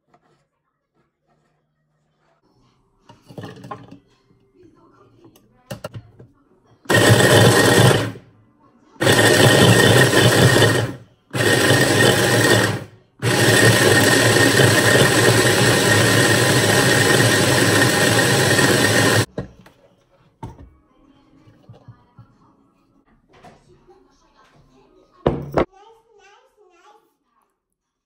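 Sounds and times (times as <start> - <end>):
hand blender grinding bread: 6.9 - 8.2, 9.0 - 19.3.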